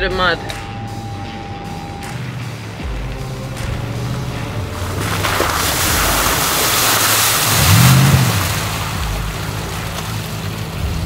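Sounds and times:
engine revving: 0:00.0 - 0:11.0
muddy water splashing: 0:02.8 - 0:11.0.

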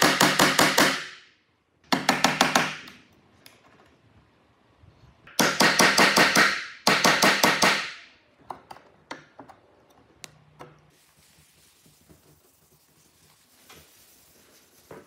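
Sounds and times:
chisel being struck: 0:05.3 - 0:08.0.

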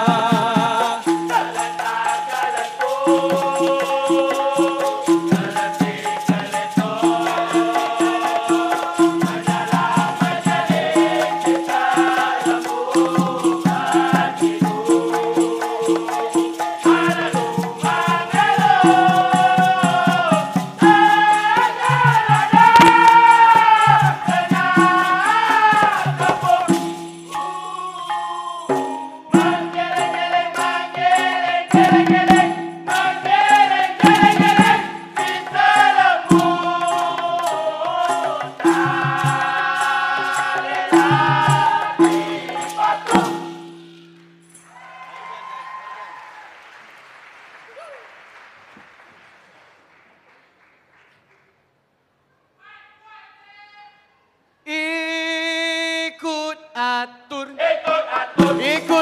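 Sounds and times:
chorus of voices singing: 0:00.0 - 0:43.7, 0:56.8 - 0:59.0
percussion beat with rattle: 0:00.0 - 0:45.1, 0:57.9 - 0:59.0.

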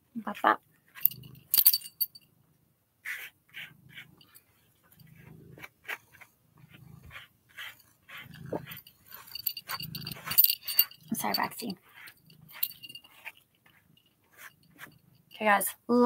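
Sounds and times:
animal breathing: 0:03.0 - 0:15.1
brush raking through cat fur: 0:03.0 - 0:15.5.

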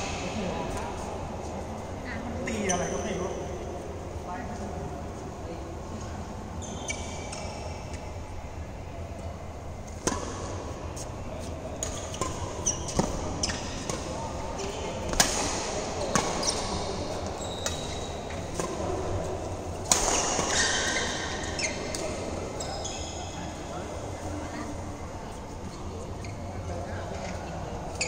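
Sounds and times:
shoes squeaking on court: 0:11.8 - 0:14.8, 0:16.0 - 0:18.7, 0:20.0 - 0:23.4
rackets hitting shuttlecock: 0:15.1 - 0:16.8, 0:19.8 - 0:21.1.

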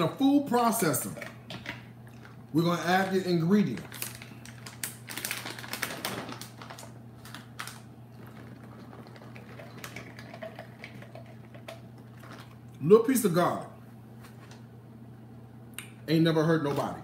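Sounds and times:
plastic packet crinkling: 0:01.1 - 0:12.6.

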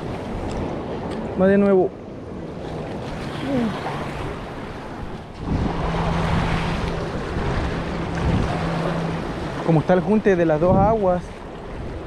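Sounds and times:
wind buffeting microphone: 0:00.0 - 0:12.0
sea water washing against rocks: 0:02.5 - 0:12.0.

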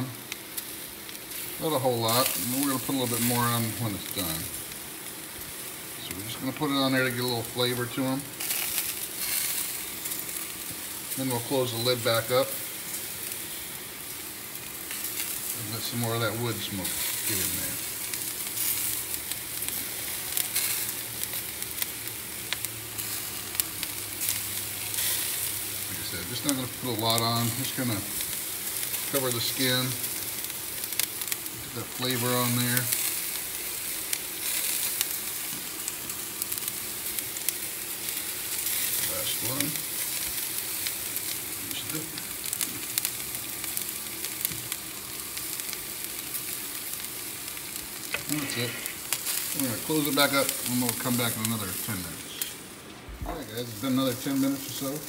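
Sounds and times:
meat sizzling on a grill: 0:00.0 - 0:55.0
fat popping: 0:48.1 - 0:49.2.

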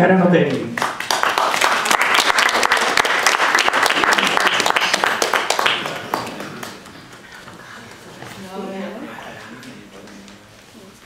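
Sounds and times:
audience applauding: 0:00.7 - 0:08.6.

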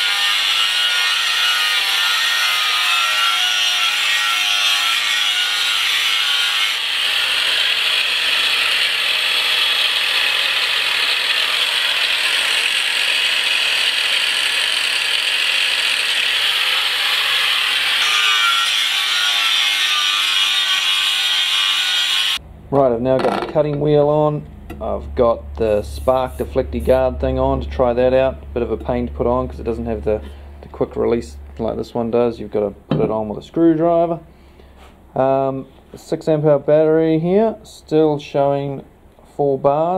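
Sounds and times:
angle grinder grinding steel: 0:00.0 - 0:22.4.

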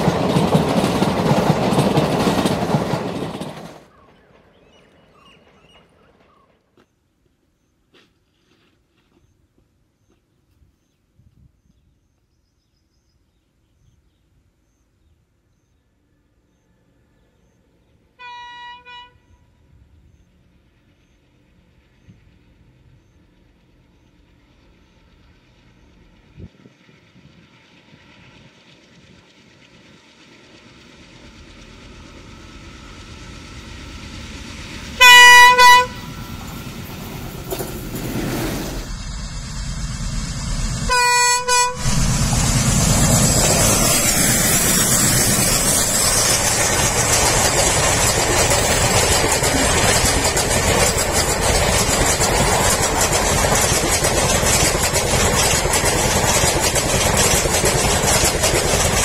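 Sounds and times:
train wheels rumbling on rails: 0:00.0 - 0:06.9, 0:19.6 - 0:59.0
diesel locomotive approaching: 0:00.0 - 0:07.7, 0:15.4 - 0:59.0
train horn blasts: 0:18.2 - 0:19.5, 0:35.0 - 0:36.2, 0:40.9 - 0:42.0.

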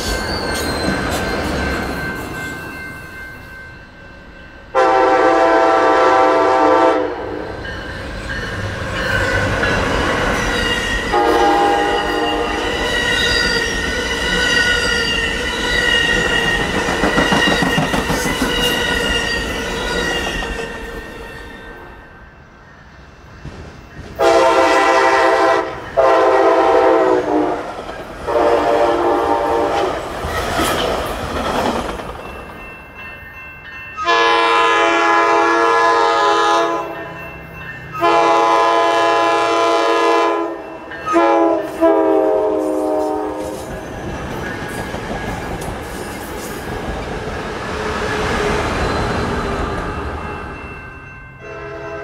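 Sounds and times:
train rumbling on tracks: 0:00.0 - 0:52.0
train horn blasts: 0:04.7 - 0:07.5, 0:11.0 - 0:13.0, 0:24.2 - 0:27.7, 0:28.3 - 0:29.9, 0:34.0 - 0:37.0, 0:38.0 - 0:43.7, 0:51.4 - 0:52.0.

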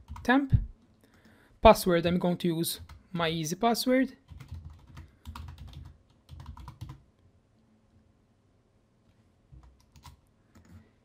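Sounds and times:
computer keyboard typing: 0:00.0 - 0:00.3, 0:02.8 - 0:03.0, 0:04.2 - 0:07.0, 0:09.5 - 0:10.8.

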